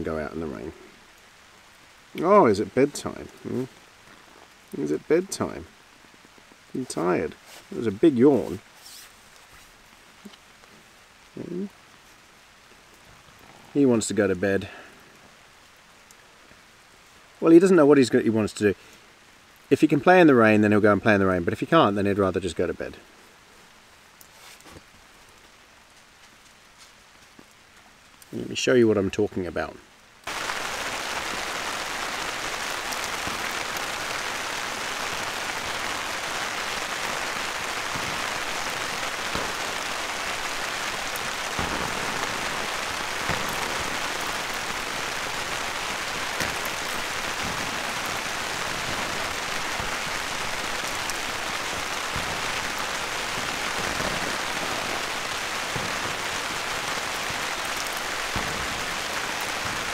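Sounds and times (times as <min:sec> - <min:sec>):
steady rain: 0:00.0 - 0:59.9.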